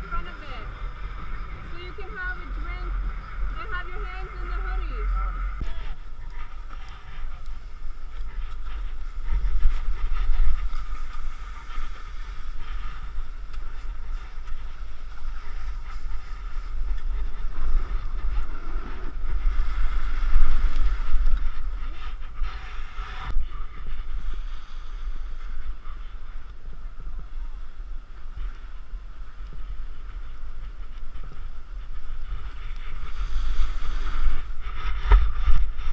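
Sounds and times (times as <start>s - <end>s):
skis sliding on snow: 0.0s - 35.9s
wind buffeting microphone: 0.0s - 35.9s.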